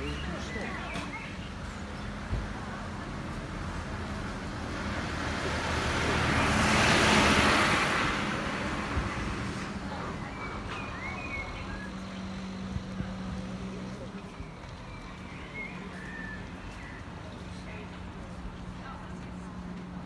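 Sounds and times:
truck driving past: 1.7 - 14.4.

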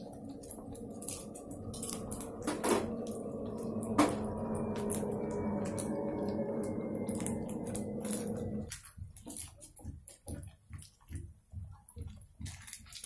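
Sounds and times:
steady low hum: 0.0 - 10.0
oil crackling and popping: 0.0 - 13.0.

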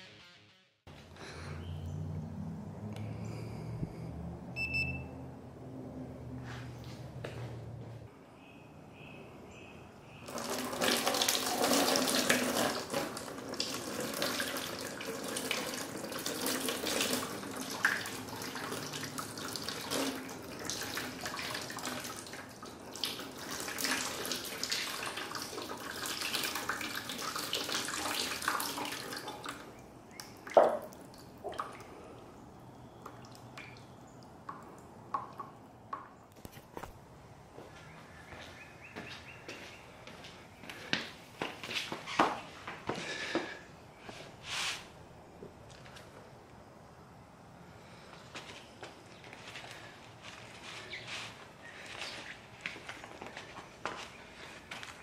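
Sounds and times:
water pouring and splashing: 10.2 - 32.2.

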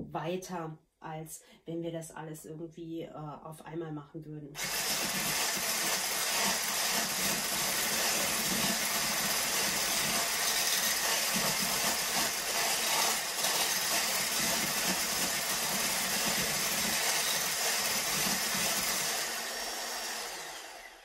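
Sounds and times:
handheld electric mixer whirring: 4.6 - 21.0.

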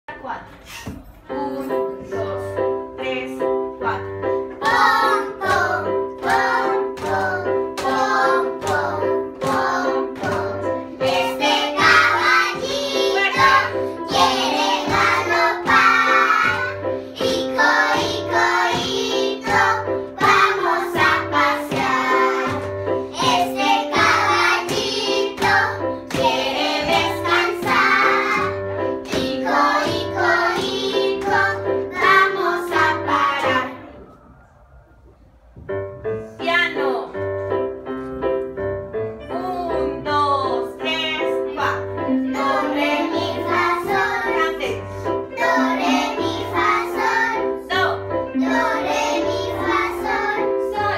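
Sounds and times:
children singing together: 4.5 - 34.1, 42.3 - 44.5, 45.2 - 47.7, 48.3 - 50.9.

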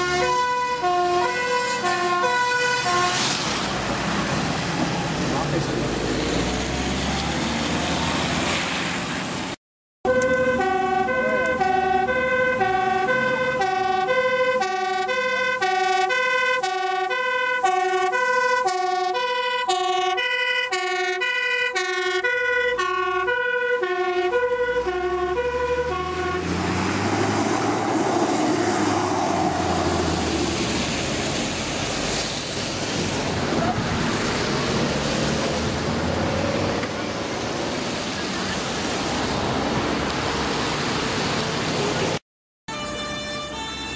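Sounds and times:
fire engine two-tone siren: 0.0 - 3.5, 10.1 - 30.6, 42.7 - 43.9.

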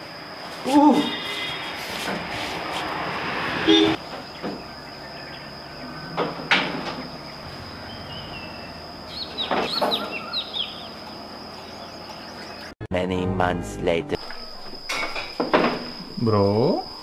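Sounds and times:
thin high whine: 0.0 - 11.0
bird chirping: 4.1 - 6.3, 6.9 - 12.8.

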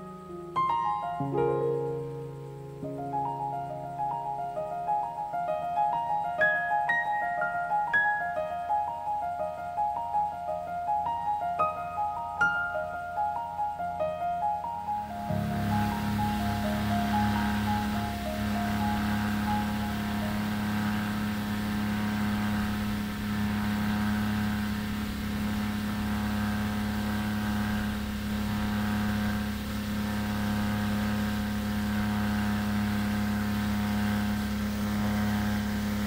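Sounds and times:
outboard motor hum: 15.1 - 36.0
wake hiss and rushing water: 15.2 - 36.0.

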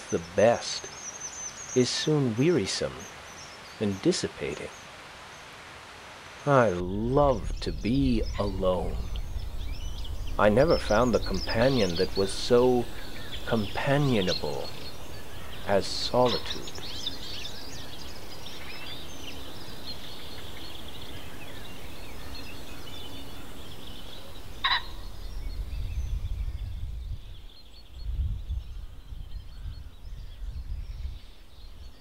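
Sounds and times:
small birds chirping: 0.0 - 32.0
loud bird call: 6.4 - 25.2
low uneven rumble: 6.5 - 19.1.

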